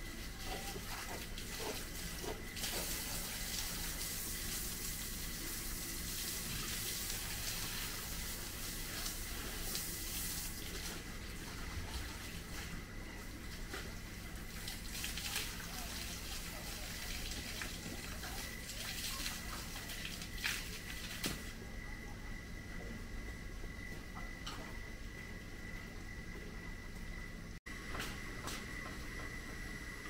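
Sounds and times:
tap water running: 0.0 - 21.6.

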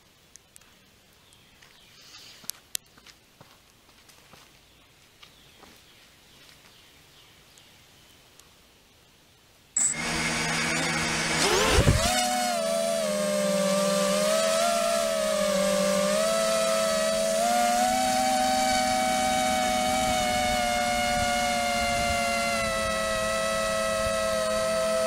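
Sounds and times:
drone motors whining: 9.8 - 25.0.

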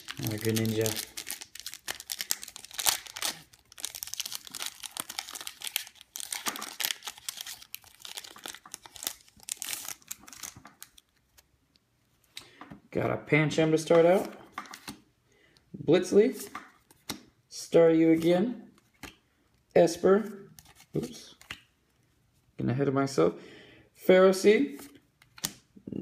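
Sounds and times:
foil wrapper crinkling and tearing: 0.0 - 11.4.

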